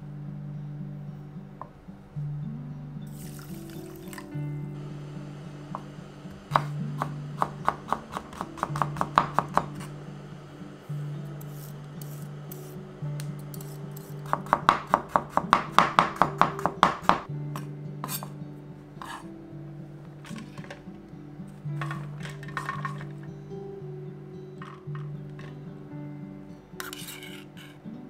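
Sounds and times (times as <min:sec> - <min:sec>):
knife chopping on wooden board: 0:06.5 - 0:09.9, 0:13.6 - 0:18.3.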